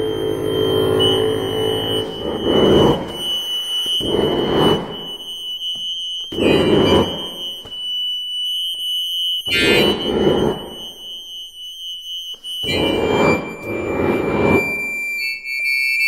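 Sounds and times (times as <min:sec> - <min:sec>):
noisy accordion swells: 0:00.0 - 0:05.1.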